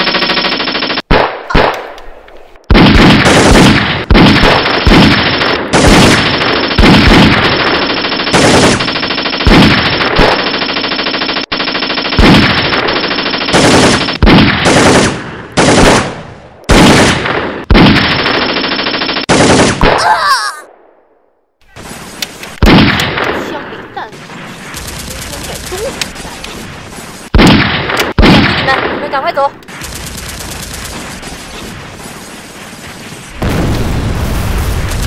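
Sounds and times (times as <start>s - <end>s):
automatic gunfire bursts: 2.7s - 16.1s, 16.7s - 19.9s, 24.5s - 26.5s.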